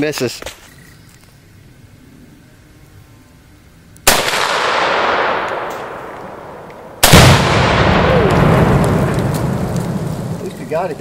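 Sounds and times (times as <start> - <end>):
rifle shot echoing: 4.0 - 10.5
deep explosion with rumbling echo: 4.2 - 11.0.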